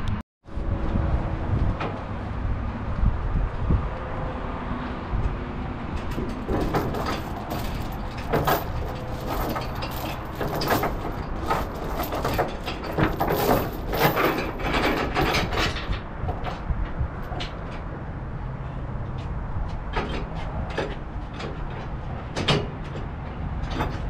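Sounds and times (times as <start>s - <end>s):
steel chain clanking: 6.0s - 17.8s.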